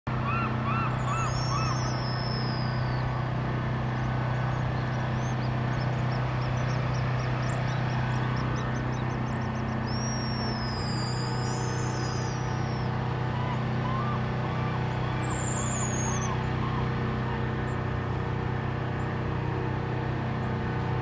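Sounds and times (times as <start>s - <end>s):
steady low hum: 0.1s - 21.0s
whistled seabird calls: 0.2s - 3.2s, 4.4s - 17.5s.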